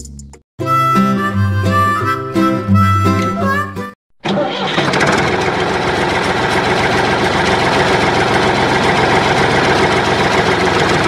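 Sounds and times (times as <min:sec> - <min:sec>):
tractor engine idling: 0:04.2 - 0:11.0.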